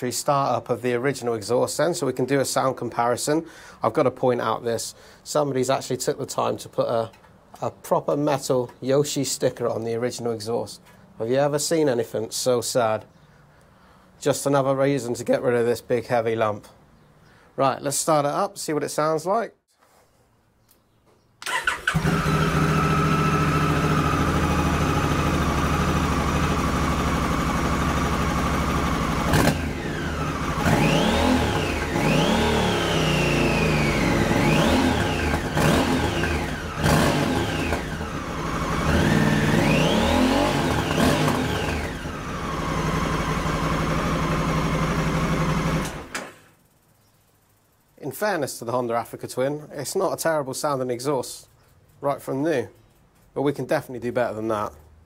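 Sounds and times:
motorcycle engine revving: 21.5s - 46.3s.

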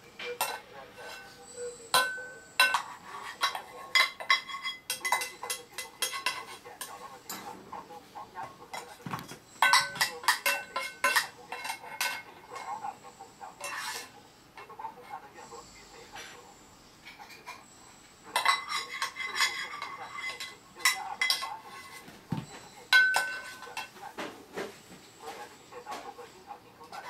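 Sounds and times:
saucepan ringing: 0.0s - 12.7s, 16.7s - 24.0s
utensil clinking on metal saucepan: 0.2s - 7.6s, 9.6s - 12.8s, 18.3s - 22.1s, 22.8s - 24.0s.

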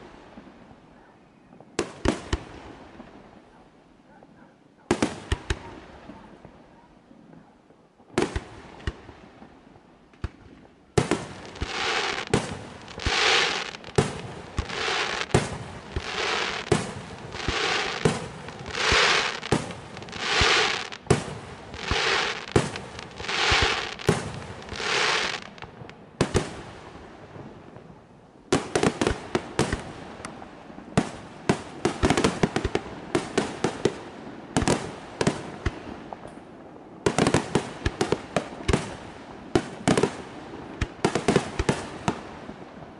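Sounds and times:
rattle of firework crackles: 11.1s - 25.8s
firework shell bursts with hiss: 11.5s - 25.7s.

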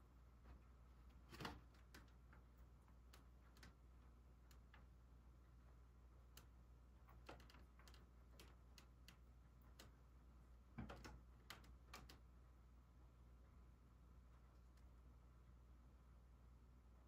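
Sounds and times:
faint irregular clicks: 0.4s - 12.4s.

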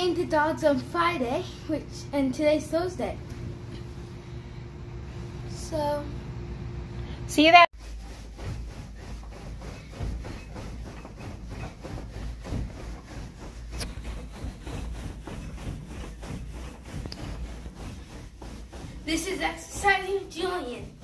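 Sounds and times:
bed creaking and rustling: 7.9s - 21.0s.

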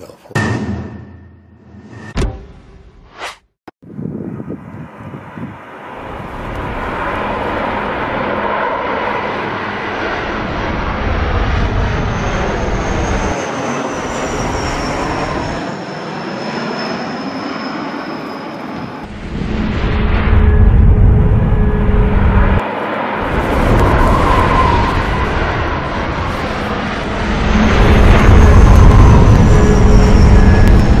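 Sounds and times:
propeller airliner flying overhead: 3.9s - 31.0s
high whine falling in pitch: 19.1s - 22.6s, 23.2s - 31.0s.

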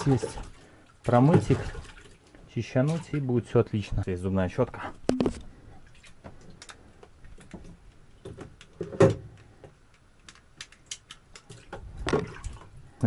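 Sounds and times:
plastic parts clicking and knocking: 7.4s - 12.4s.

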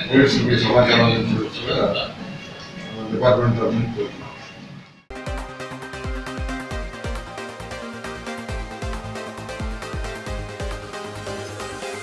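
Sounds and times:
electronic music deep beat: 5.1s - 12.0s
held synth notes: 5.1s - 12.0s.

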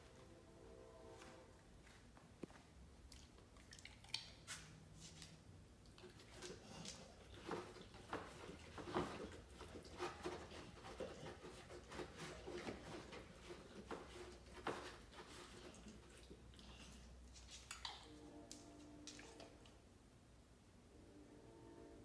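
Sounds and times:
dog eating from a bowl: 5.9s - 18.4s.

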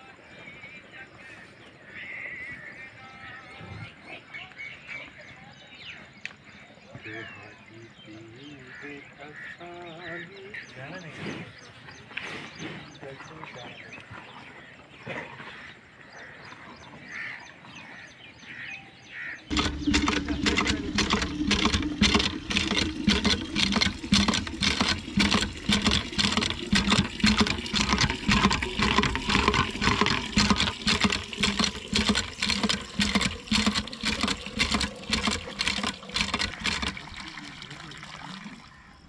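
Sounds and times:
hand pump clanking: 19.5s - 37.4s
water gushing onto concrete: 19.5s - 38.9s.

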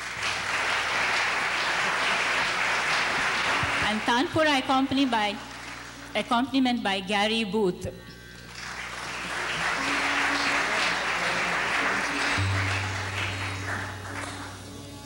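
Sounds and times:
audience applauding: 0.0s - 6.1s, 8.4s - 14.9s
steady low drone: 8.0s - 15.0s.

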